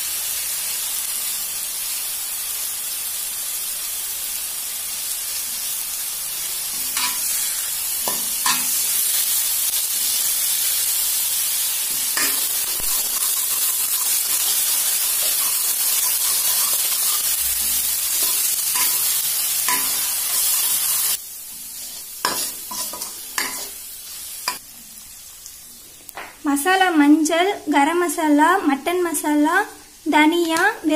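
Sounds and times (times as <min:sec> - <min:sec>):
paste sizzling in hot oil: 0:00.0 - 0:25.9
spoon clinking and scraping pan: 0:06.8 - 0:07.4, 0:08.0 - 0:08.8, 0:11.9 - 0:21.1, 0:21.8 - 0:23.8.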